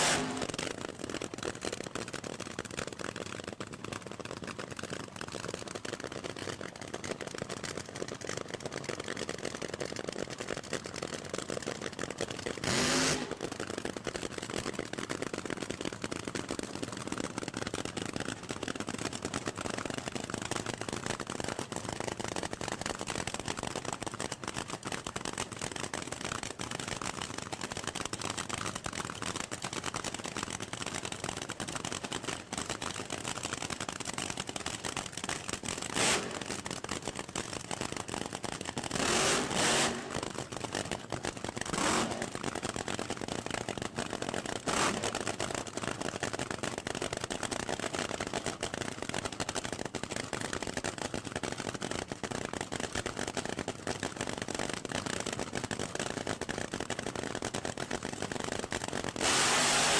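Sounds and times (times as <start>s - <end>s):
engine throttle blips: 0.0s - 0.7s, 12.7s - 13.6s
drag racing engines idling: 0.0s - 54.9s, 56.2s - 59.9s.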